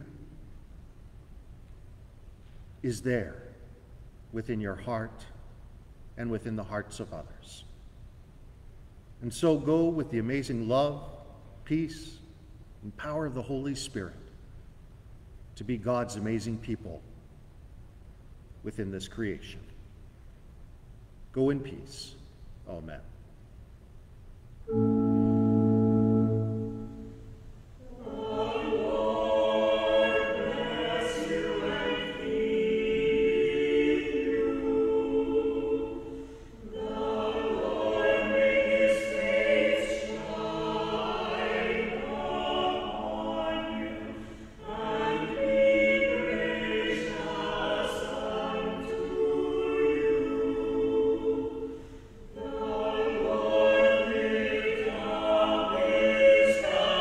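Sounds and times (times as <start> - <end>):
organ chord: 24.7 - 31.9
small choir singing: 24.7 - 57.0.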